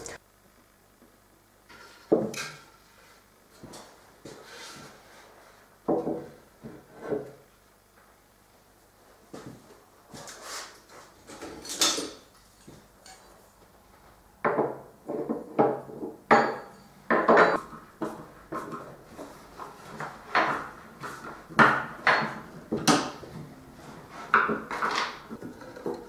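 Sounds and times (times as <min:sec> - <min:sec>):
metal tools clanking on wood: 0:11.3 - 0:13.3, 0:24.4 - 0:26.0.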